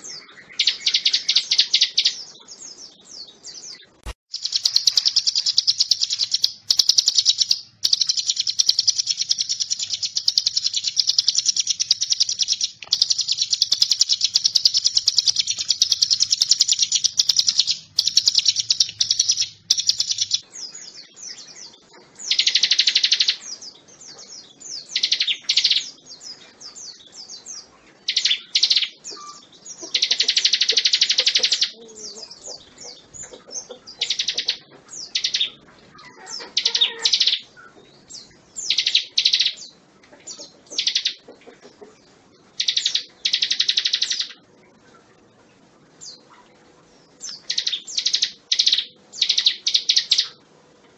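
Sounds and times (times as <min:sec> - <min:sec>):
bird singing fast high trills: 0:00.0 - 0:02.4, 0:04.3 - 0:21.6.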